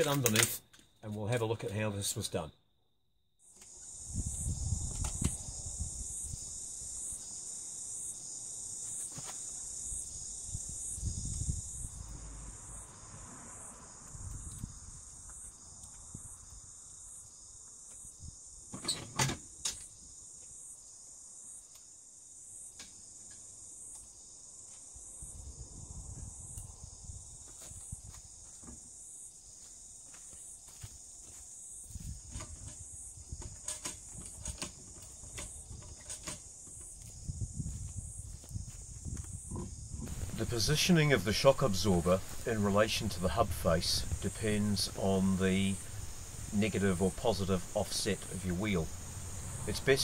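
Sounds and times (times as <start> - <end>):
sharp clicks: 0.0 - 0.9
insects chirping: 0.0 - 50.0
low rumbling noise: 11.1 - 15.1, 40.0 - 50.0.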